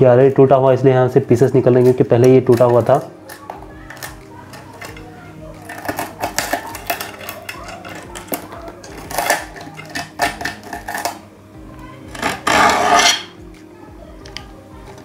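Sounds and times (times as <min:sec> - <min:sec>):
blade scraping glass: 0:12.1 - 0:13.4.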